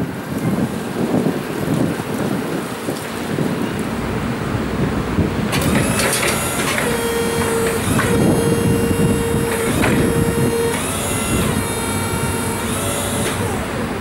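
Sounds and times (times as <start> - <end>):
wind on microphone: 0.0 - 14.0
electric forklift motor whining: 5.5 - 14.0.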